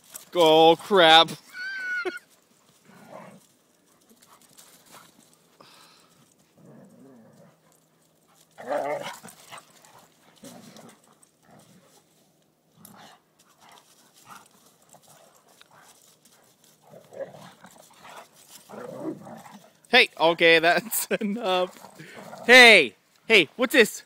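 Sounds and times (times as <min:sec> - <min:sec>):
dogs growling: 0:02.8 - 0:03.5, 0:05.7 - 0:12.1, 0:12.7 - 0:19.9, 0:21.7 - 0:22.5.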